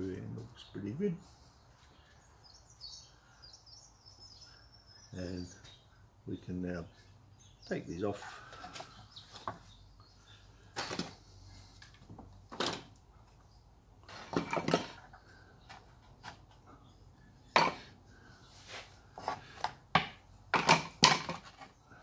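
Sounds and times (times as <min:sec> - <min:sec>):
wood knocking on wood: 0:19.2 - 0:21.6.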